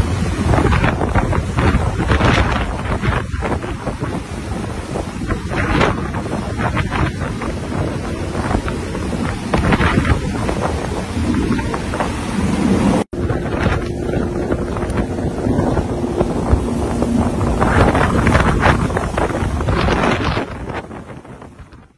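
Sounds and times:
churning water rushing: 0.0s - 21.9s
strong wind buffeting microphone: 0.0s - 21.9s.

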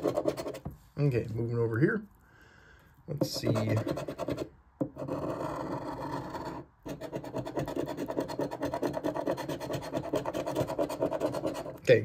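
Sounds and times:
coin scratching lottery ticket: 0.0s - 0.6s, 3.2s - 11.8s.

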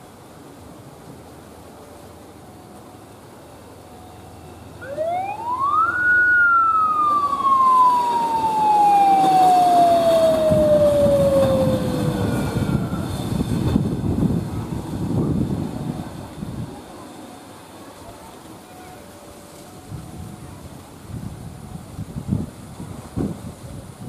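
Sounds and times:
passing train rumble: 0.0s - 24.0s
siren-like whine: 3.8s - 13.8s.

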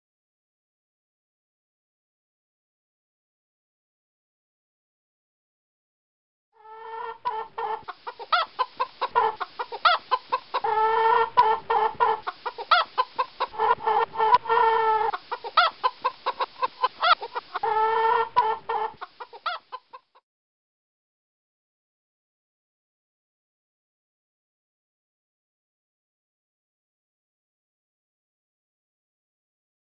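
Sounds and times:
chicken clucking: 6.6s - 20.2s
chicken drawn-out call: 6.6s - 20.2s.

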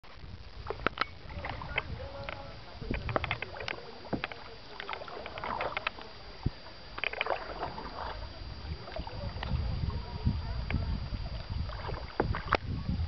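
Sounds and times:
wind rumble on microphone: 0.0s - 13.0s
paddle splashes: 0.2s - 12.8s.

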